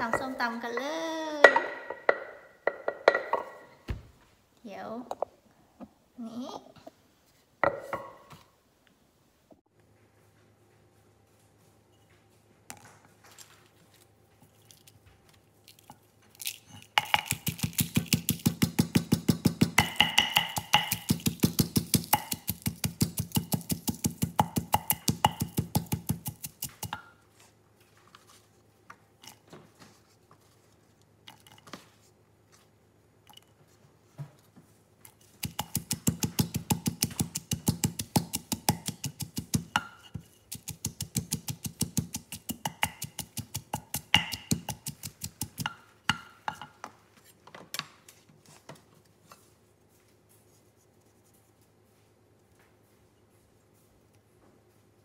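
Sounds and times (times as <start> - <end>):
pestle knocking and scraping: 0.0 - 4.0, 7.6 - 8.4, 16.4 - 27.2, 35.1 - 47.0
pestle pounding in mortar: 1.4 - 3.6, 17.0 - 27.1, 35.3 - 46.8.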